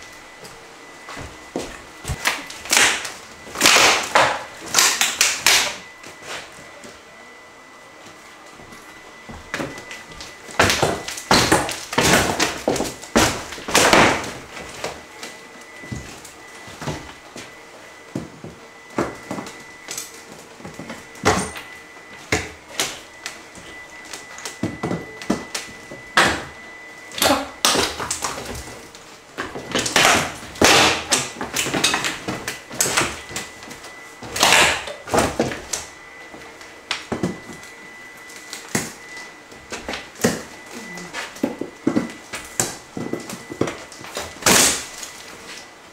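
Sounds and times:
wood cracking and knocking: 0:02.1 - 0:05.8, 0:09.5 - 0:15.0, 0:29.4 - 0:33.6.

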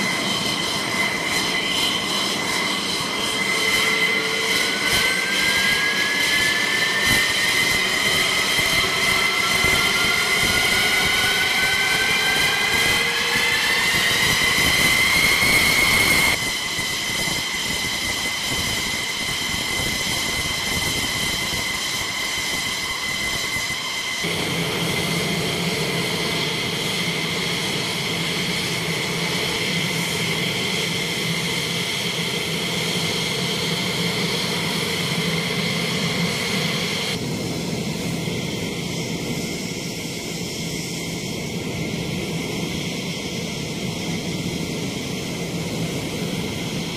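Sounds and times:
jet engine whining: 0:00.0 - 0:46.9.

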